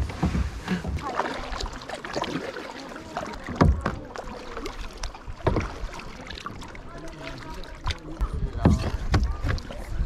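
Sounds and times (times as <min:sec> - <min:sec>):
paddle splashing in water: 0:00.0 - 0:10.0.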